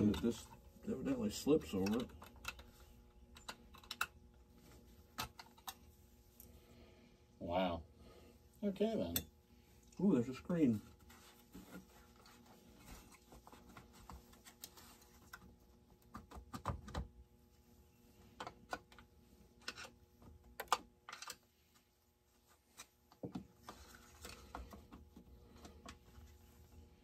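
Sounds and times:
small parts clicking and tapping: 1.6s - 4.4s, 5.1s - 6.6s, 18.3s - 21.8s.

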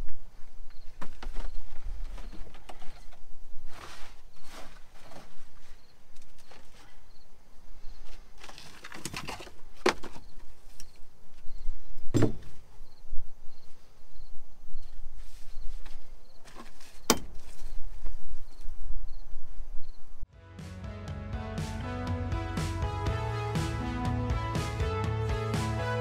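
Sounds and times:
faint insect chirping: 0.0s - 3.6s, 4.3s - 8.8s, 10.0s - 20.3s
carpet rustling and scraping: 0.0s - 7.0s, 14.8s - 18.6s.

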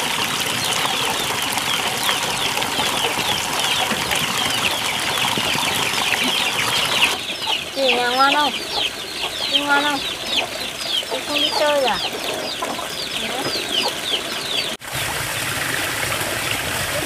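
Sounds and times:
birds chirping: 0.0s - 15.5s.

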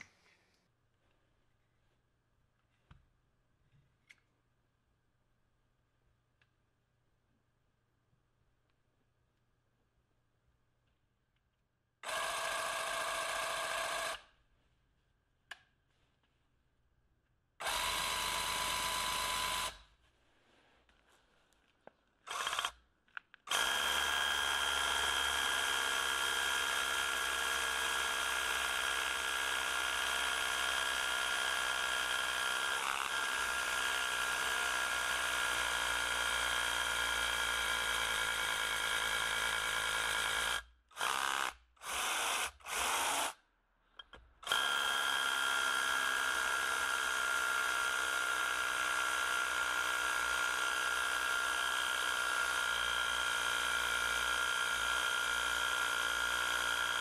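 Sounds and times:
hammer drill boring into concrete: 12.0s - 14.3s, 17.6s - 19.9s, 22.3s - 22.8s, 23.4s - 43.4s, 44.1s - 57.0s.

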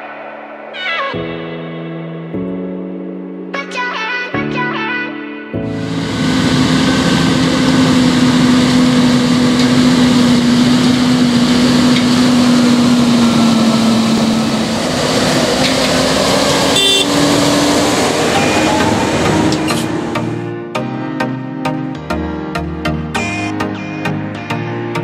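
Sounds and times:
tractor engine droning: 5.7s - 20.6s.

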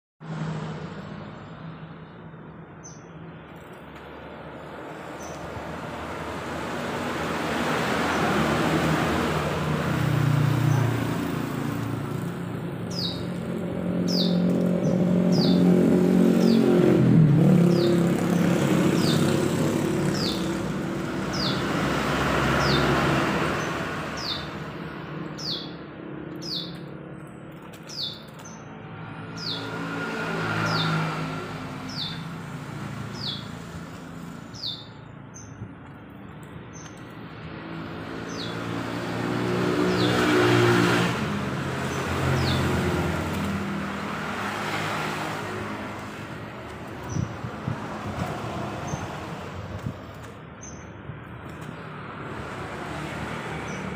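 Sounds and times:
motor vehicles passing: 0.2s - 53.9s
songbird high chirps: 12.9s - 13.4s, 14.0s - 15.8s, 25.2s - 26.9s, 31.8s - 32.3s, 33.0s - 33.6s, 34.5s - 35.6s.

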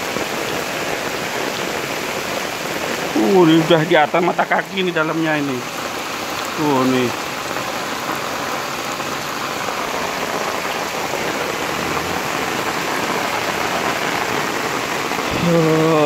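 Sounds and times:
heavy rain hitting water: 0.0s - 16.0s
man's voice: 3.1s - 5.7s, 6.6s - 7.2s, 11.6s - 12.4s, 15.3s - 16.0s.

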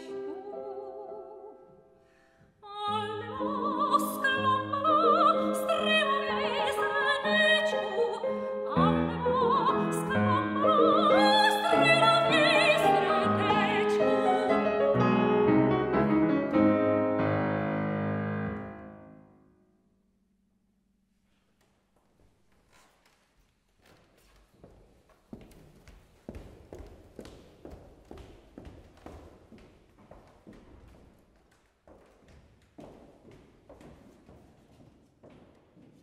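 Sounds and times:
operatic soprano singing: 0.0s - 1.8s, 2.6s - 14.9s
grand piano: 0.0s - 19.7s.

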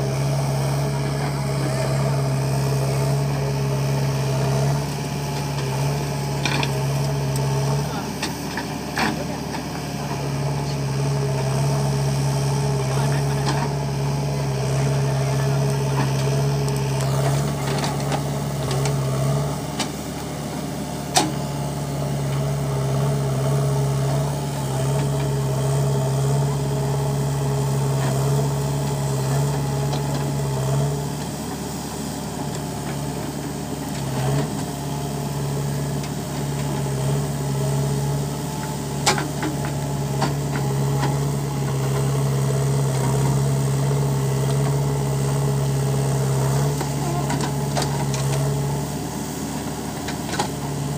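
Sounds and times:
diesel engine running: 0.0s - 50.9s.

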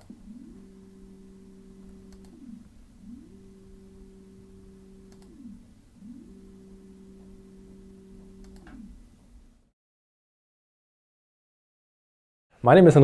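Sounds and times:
electric motor hum: 0.0s - 9.7s.

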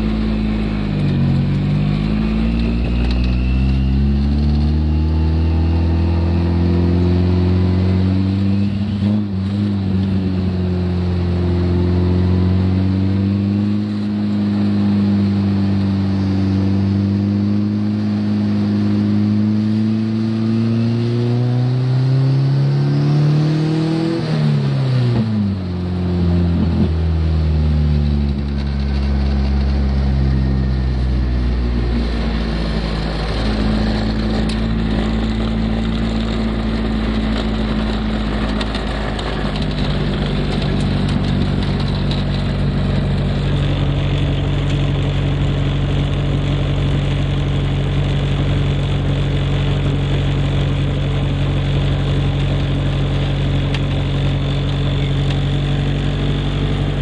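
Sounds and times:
car engine running: 0.0s - 57.0s
road noise: 0.0s - 57.0s.

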